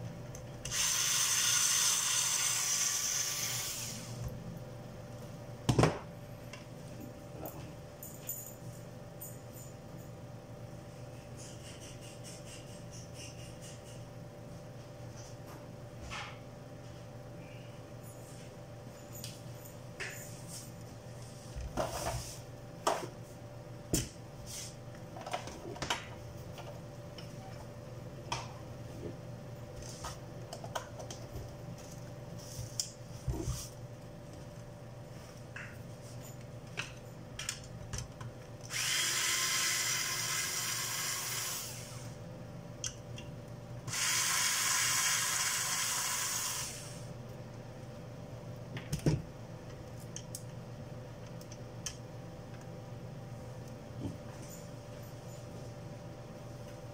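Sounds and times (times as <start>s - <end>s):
hot air rework tool hissing: 0.7s - 4.2s, 38.7s - 42.2s, 43.9s - 47.1s.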